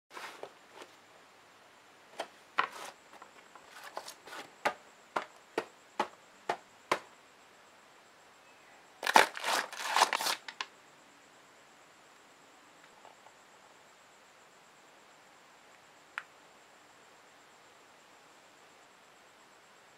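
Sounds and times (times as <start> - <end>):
paper and cardboard rustling: 0.1 - 1.0, 2.2 - 4.6, 9.0 - 10.5
clicks and taps on cardboard: 4.6 - 7.1.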